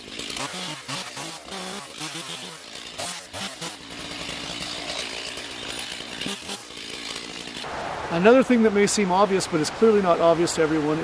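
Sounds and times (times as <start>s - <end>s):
chainsaw revving: 0.0s - 7.7s.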